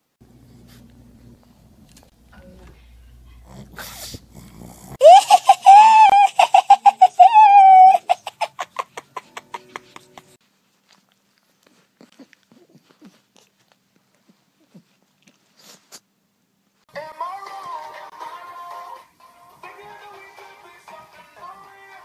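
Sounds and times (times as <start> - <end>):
person laughing high-pitched: 5.0 - 10.4.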